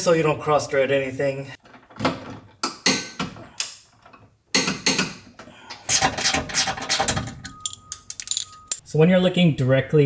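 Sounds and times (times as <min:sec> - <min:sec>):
metallic clinks of tools: 0:07.3 - 0:08.8.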